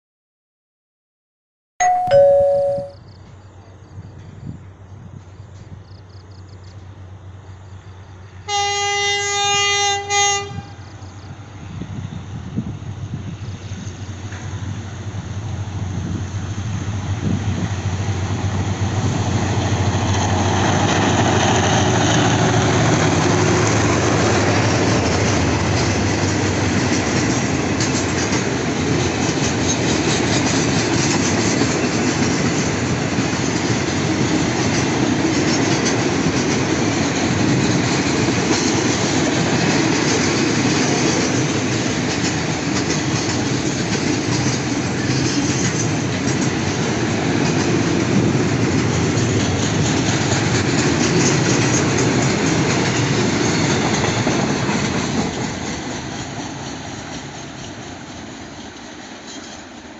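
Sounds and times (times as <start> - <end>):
train wheels on rails: 3.2 - 59.9
wheels clicking over rail joints: 18.5 - 59.9.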